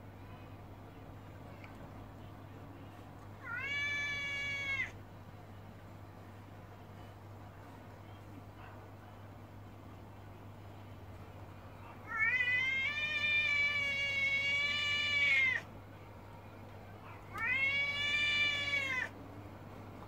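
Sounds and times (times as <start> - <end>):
tomcat yowling: 3.4 - 5.0, 12.0 - 15.6, 17.3 - 19.1.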